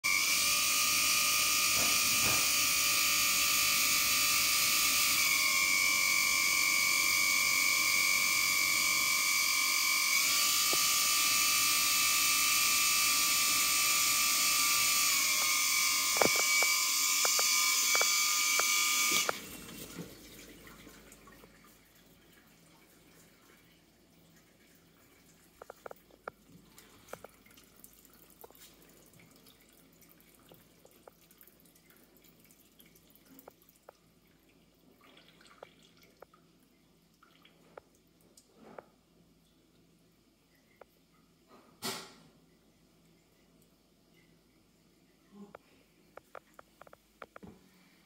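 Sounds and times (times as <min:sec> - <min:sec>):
dishwasher whine and hiss: 0:00.0 - 0:21.2.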